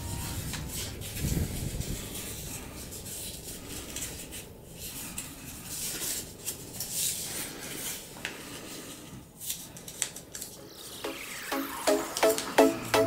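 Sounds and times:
paper rustling while folded: 0.2s - 10.6s.

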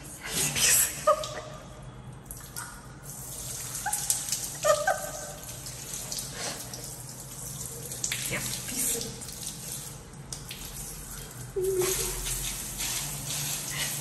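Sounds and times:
water sprayer hissing: 11.6s - 14.0s.

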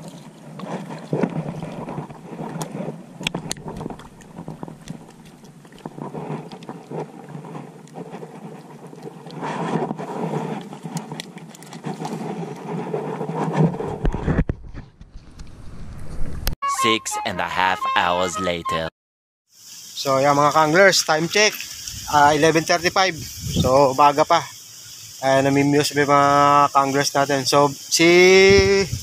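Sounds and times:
water splashing and sloshing: 0.0s - 14.2s.

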